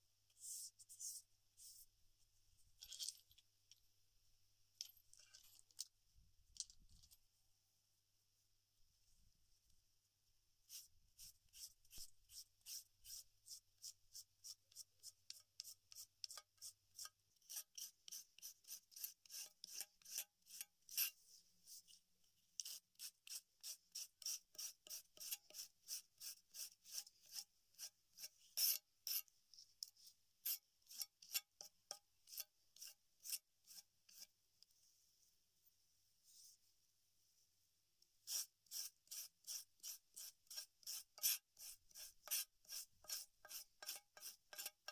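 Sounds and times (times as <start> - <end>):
stone rasping along leaf: 10.7 - 21.2, 22.6 - 29.2, 30.4 - 34.3, 38.2 - 44.9.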